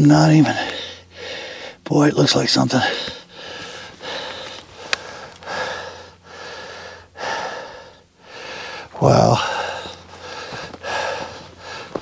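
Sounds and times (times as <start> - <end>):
man breathing hard: 0.3 - 1.8, 2.8 - 12.0.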